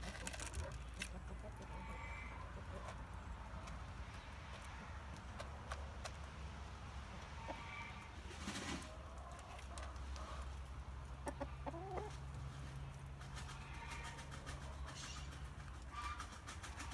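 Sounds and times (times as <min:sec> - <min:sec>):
hen pecking feeder dish: 0:00.0 - 0:16.9
hen clucking: 0:00.2 - 0:03.8, 0:07.0 - 0:16.9.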